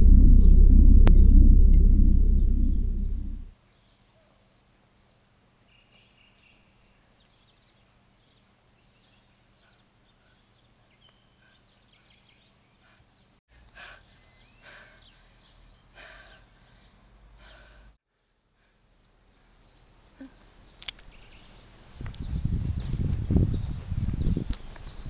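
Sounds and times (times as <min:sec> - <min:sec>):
faint bird chirps: 0:03.7 - 0:13.3, 0:19.2 - 0:23.7.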